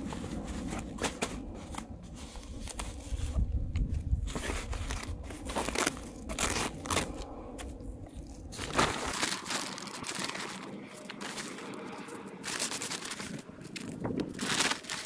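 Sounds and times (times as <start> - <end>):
sand crunching and scraping: 0.0 - 15.0
fabric bag rustling: 4.3 - 7.2, 8.2 - 15.0.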